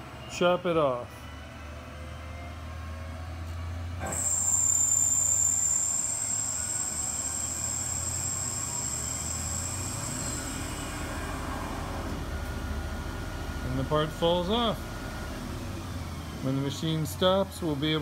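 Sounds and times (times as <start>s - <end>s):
low machine hum: 1.0s - 18.0s
high-pitched cutting whine: 4.0s - 12.4s.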